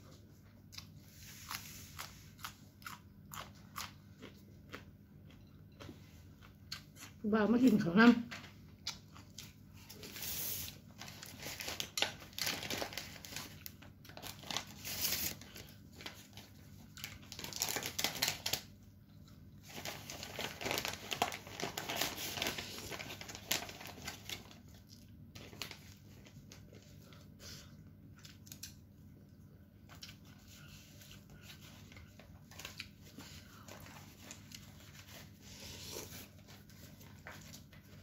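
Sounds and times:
person chewing: 0.4s - 7.2s, 8.8s - 10.1s, 27.2s - 36.7s.

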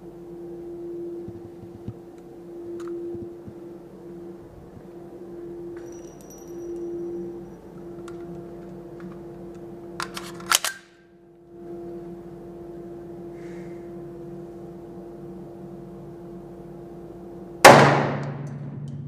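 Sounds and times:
pistol metal clicks: 10.0s - 10.9s
pistol shot with echo: 17.6s - 18.4s.

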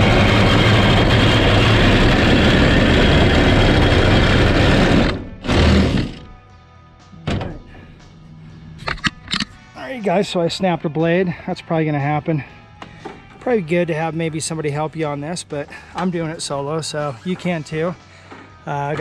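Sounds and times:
jigsaw cutting sheet metal: 0.0s - 6.4s.

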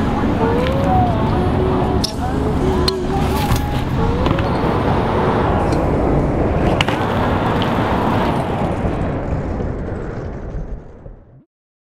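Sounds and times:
bike tyres rolling on pavement: 2.4s - 11.4s.

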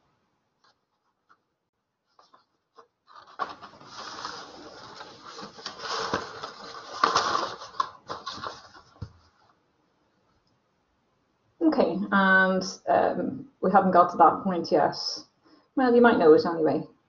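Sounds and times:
scratching and rustling: 0.6s - 9.6s.

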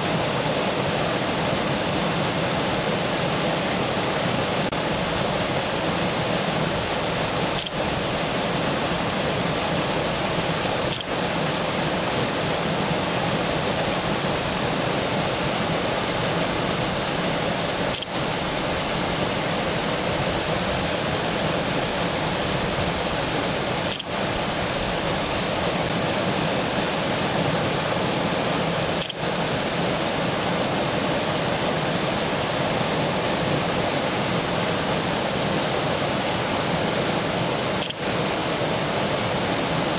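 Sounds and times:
river pouring over a weir: 0.0s - 39.9s.

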